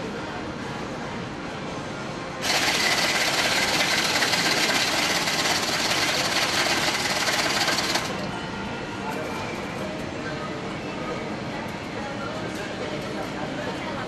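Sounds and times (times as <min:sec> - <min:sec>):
ice machine grinding ice: 0:02.4 - 0:08.2.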